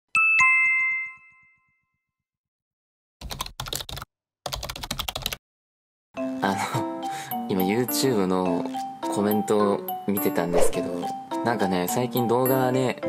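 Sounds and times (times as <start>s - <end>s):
computer keyboard typing clicks: 3.2s - 5.4s.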